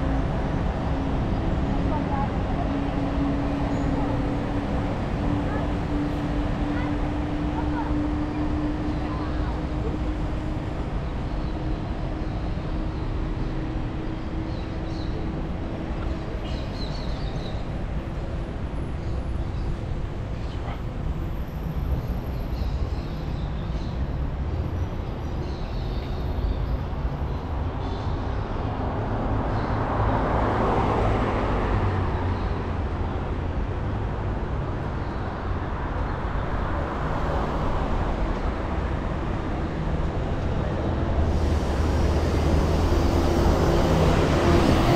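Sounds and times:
low rumble of traffic: 0:00.0 - 0:44.9
vehicle passing by: 0:36.6 - 0:44.9.

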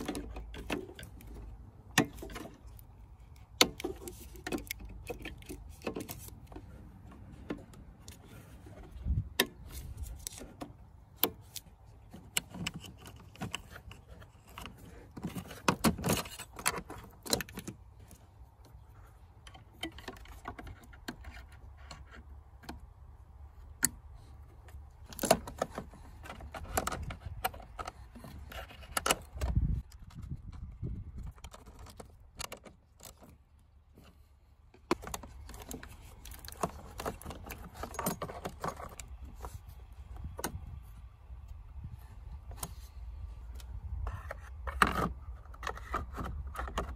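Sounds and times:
plastic connectors clicking: 0:34.8 - 0:39.2.

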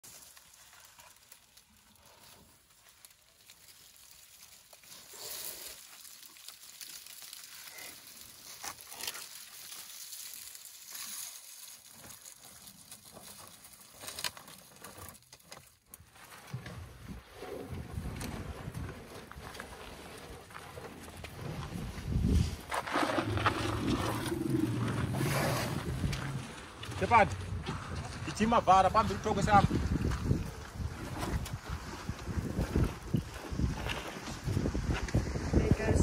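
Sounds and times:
dry twigs and leaves rustling: 0:00.0 - 0:17.2
twigs snapping: 0:05.7 - 0:15.8.

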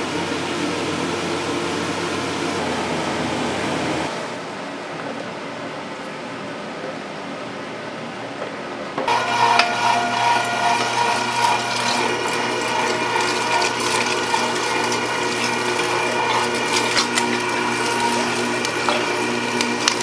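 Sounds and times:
electric machine humming and whining: 0:09.1 - 0:20.0.

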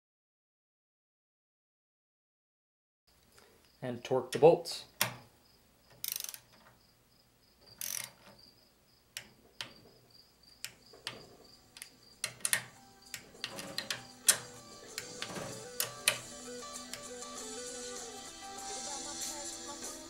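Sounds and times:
torque wrench ratcheting: 0:06.0 - 0:06.5, 0:07.8 - 0:08.3
metal clicks and taps: 0:09.2 - 0:09.9, 0:10.6 - 0:17.1.

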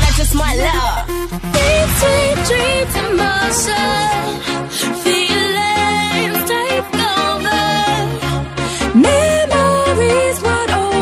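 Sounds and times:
electronic dance-pop music: 0:00.0 - 0:11.0.

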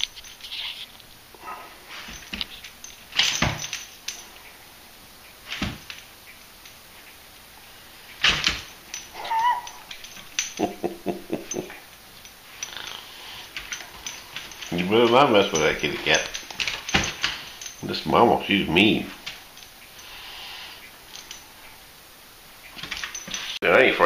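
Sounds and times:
collar tags jingling: 0:00.0 - 0:04.7, 0:05.4 - 0:22.0, 0:22.6 - 0:23.6
pet gate knocking and rattling: 0:02.1 - 0:04.2, 0:05.5 - 0:06.1, 0:08.2 - 0:11.8, 0:13.6 - 0:17.9, 0:22.8 - 0:23.6.

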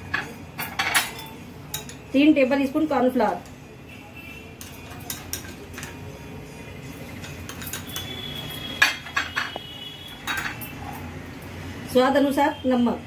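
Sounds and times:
metal spoon scraping glass bowl: 0:07.2 - 0:11.0.

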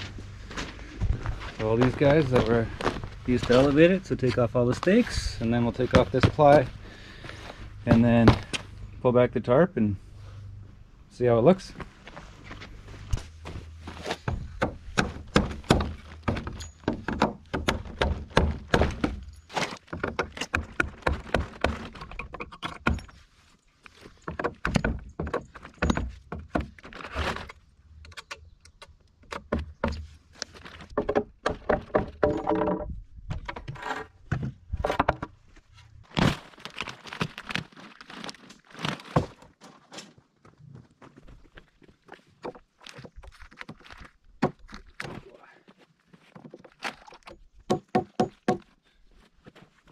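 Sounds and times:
tool knocking wooden boards: 0:14.2 - 0:23.0, 0:30.8 - 0:33.7, 0:47.7 - 0:48.7.

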